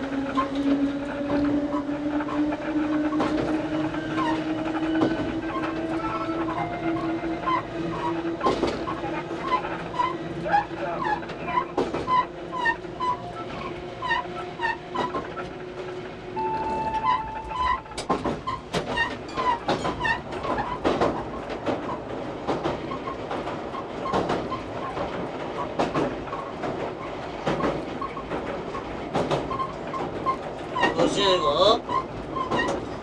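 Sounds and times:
train clattering over bridge: 0.0 - 33.0
train wheels clicking over rail joints: 0.0 - 33.0.

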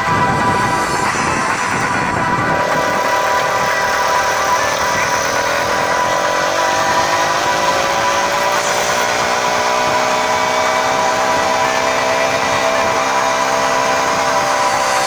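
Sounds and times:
small gasoline engine running: 0.0 - 15.0.

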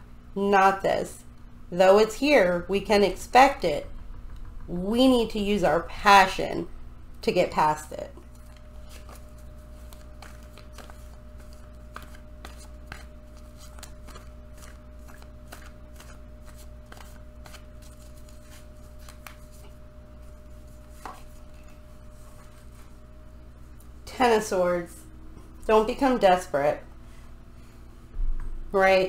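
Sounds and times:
cards being shuffled: 8.3 - 22.9.

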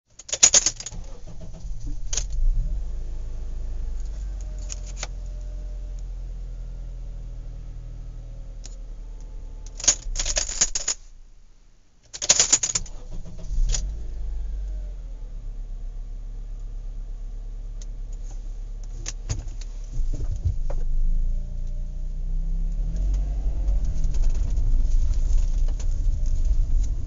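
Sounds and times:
metallic jangling and rattling: 0.1 - 2.6, 4.0 - 5.1, 9.6 - 11.1, 12.1 - 13.9
steady low rumble: 0.8 - 12.0, 13.0 - 27.0.

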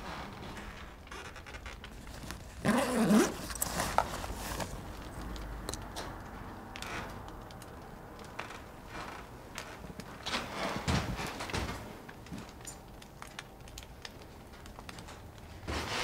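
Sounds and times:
rustling of fabric bag: 0.0 - 5.2.

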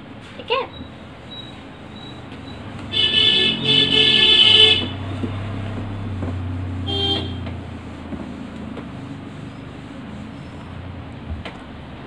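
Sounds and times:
low engine hum: 0.0 - 12.0
vehicle horn honking: 2.9 - 5.0, 6.8 - 7.4.

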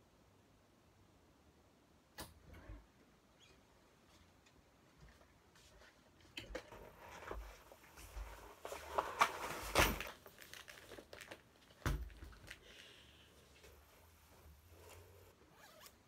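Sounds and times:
straps and jacket rustling: 4.0 - 16.0.

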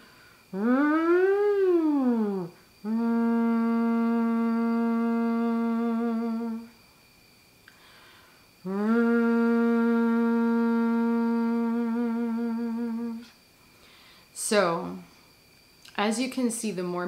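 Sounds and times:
woman singing through a straw: 0.5 - 6.8, 8.6 - 13.3.

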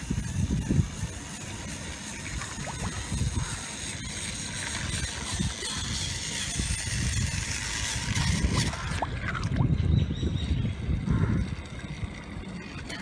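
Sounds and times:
toy train motors whirring: 0.0 - 13.0
toys splashing into water: 2.1 - 9.8.

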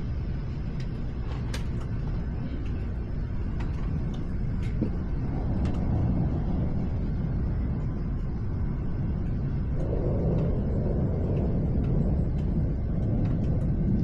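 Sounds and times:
thunder rumble: 0.0 - 14.0
sharp ticks: 8.1 - 14.0.

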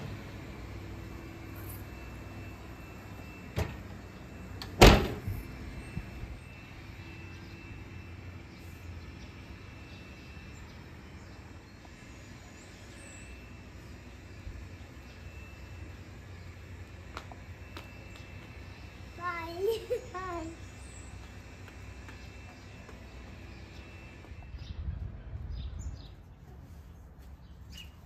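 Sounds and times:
oven door thud closing: 4.8 - 5.3.

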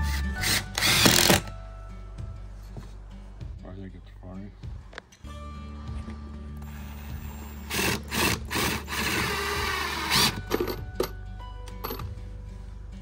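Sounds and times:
impact driver driving screw into wood: 0.4 - 1.5, 7.6 - 10.8.

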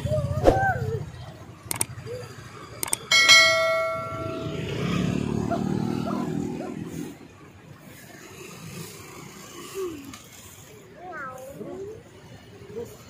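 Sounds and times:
short clicks: 1.7 - 1.9, 2.8 - 3.1
metal cooking vessel ringing: 3.1 - 4.9.

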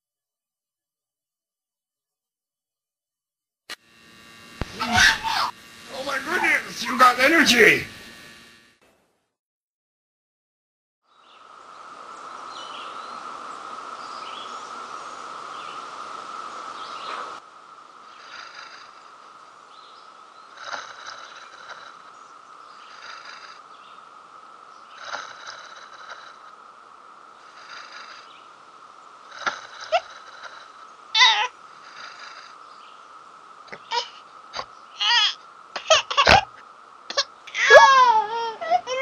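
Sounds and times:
high-pitched mews and squeaks: 4.7 - 6.6, 25.0 - 26.4, 29.3 - 32.5, 33.7 - 39.0
soft breaths: 20.5 - 32.8.

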